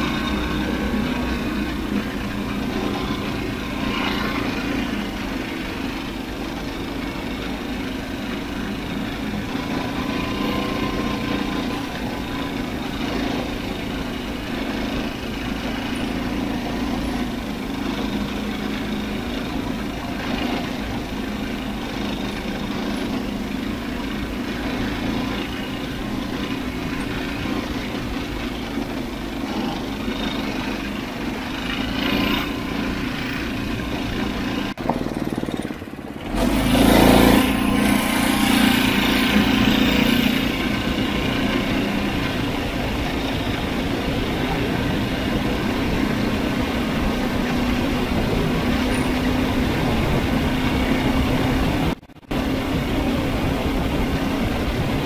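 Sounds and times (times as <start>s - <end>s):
small engine running: 0.0s - 55.0s.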